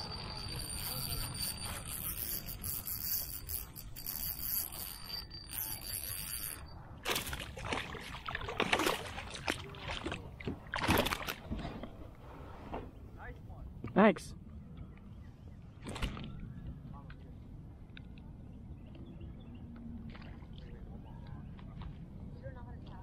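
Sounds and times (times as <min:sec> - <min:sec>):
fish thrashing and splashing: 0:07.0 - 0:11.6.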